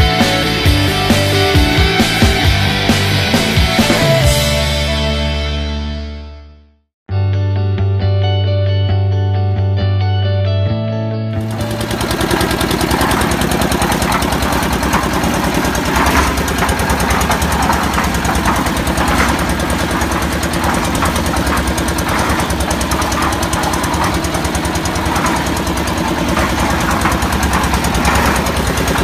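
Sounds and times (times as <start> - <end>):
mixer drum clatter: 0.0 - 5.0, 11.4 - 29.0
concrete mixer engine chugging: 0.0 - 5.4, 11.4 - 29.0.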